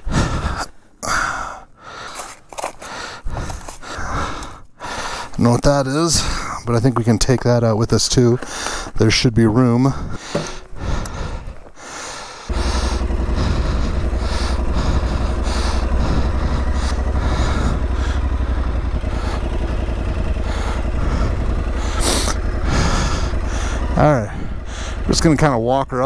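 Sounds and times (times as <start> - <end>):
motorcycle engine starting and idling: 9.9 - 26.0.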